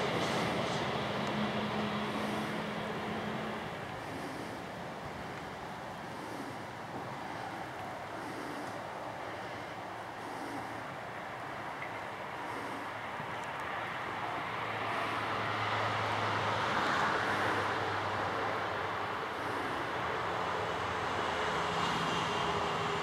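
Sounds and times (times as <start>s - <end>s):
diesel machinery humming: 0.0s - 23.0s
rushing vehicle noise: 0.0s - 23.0s.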